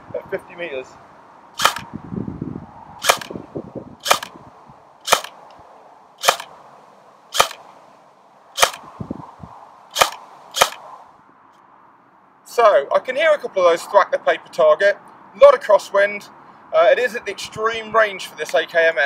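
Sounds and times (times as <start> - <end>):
airsoft gun firing single shots: 1.6 - 1.9, 3.0 - 3.4, 4.0 - 4.4, 5.0 - 5.4, 6.2 - 6.6, 7.3 - 7.8, 8.6 - 8.9, 9.9 - 10.9.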